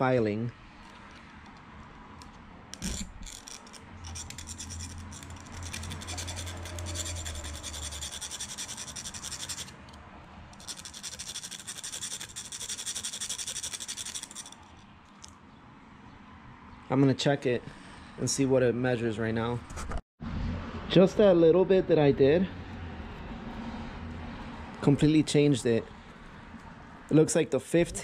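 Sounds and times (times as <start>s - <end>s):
file scraping metal ring: 2.2s - 10.0s, 10.6s - 14.8s.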